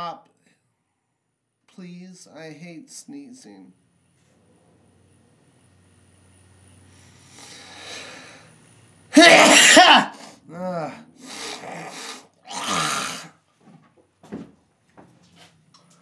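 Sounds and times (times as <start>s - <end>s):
man sneezing: 9.1s - 13.3s
man groaning: 9.2s - 13.3s.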